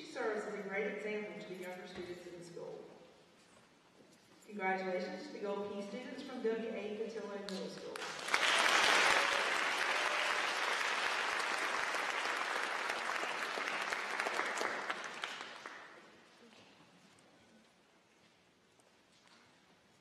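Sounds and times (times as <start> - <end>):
audience applauding: 8.0 - 16.0.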